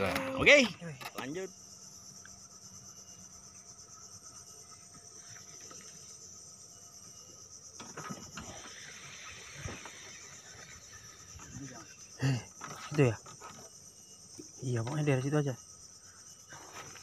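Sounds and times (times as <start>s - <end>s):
insects chirring: 0.0s - 17.0s
knocks and rustles: 7.8s - 8.7s.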